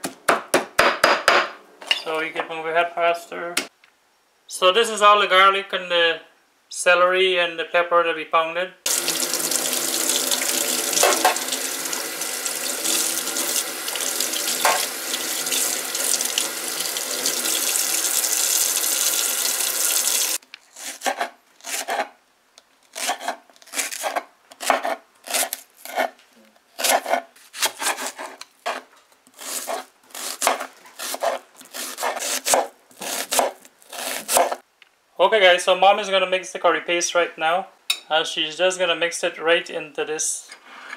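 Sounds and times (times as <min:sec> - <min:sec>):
knife slicing on wooden board: 0:20.7 - 0:22.1, 0:22.9 - 0:26.2, 0:26.8 - 0:34.6.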